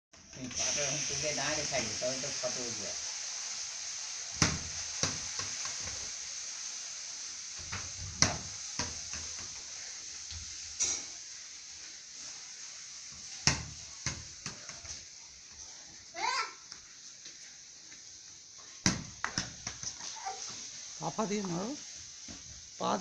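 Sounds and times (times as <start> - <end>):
steady hiss: 0.2 - 23.0
ball bouncing on concrete: 13.4 - 15.0, 18.8 - 20.1.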